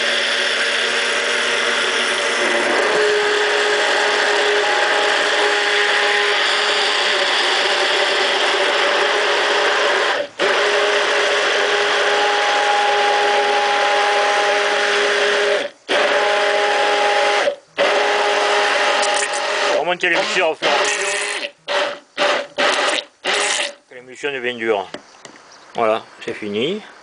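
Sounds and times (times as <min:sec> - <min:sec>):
immersion blender running: 0:00.0 - 0:23.8.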